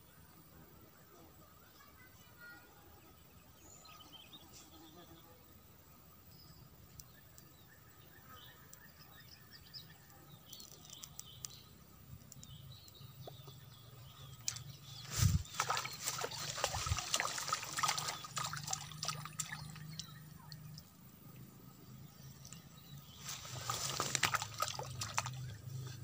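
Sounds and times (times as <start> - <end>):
fish splashing at water surface: 15.2 - 20.9, 23.3 - 25.7.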